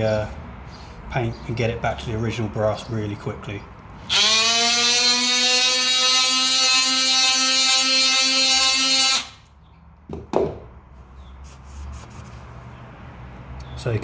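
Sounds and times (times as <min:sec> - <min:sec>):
oscillating multi-tool sanding: 0:04.1 - 0:09.4.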